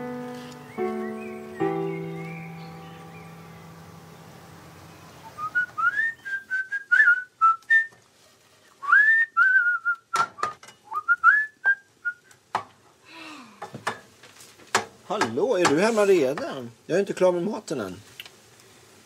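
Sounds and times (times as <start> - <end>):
person whistling a tune: 5.4 - 8.0, 8.8 - 12.2.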